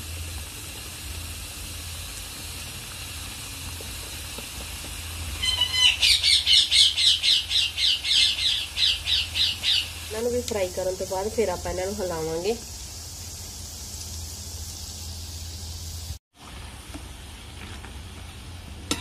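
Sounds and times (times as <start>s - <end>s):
dough sizzling in hot oil: 0.0s - 19.0s
bird squawking: 5.4s - 10.0s.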